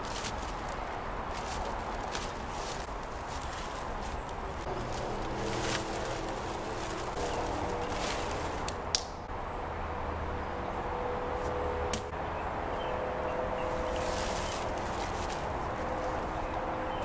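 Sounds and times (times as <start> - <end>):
footsteps in dry leaves: 0.0 - 9.0, 13.5 - 17.0.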